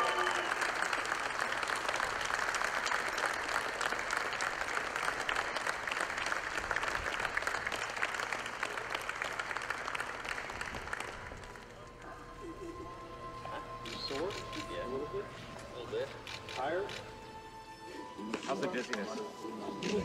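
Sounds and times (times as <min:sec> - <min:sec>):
group of people applauding: 0:00.0 - 0:12.1.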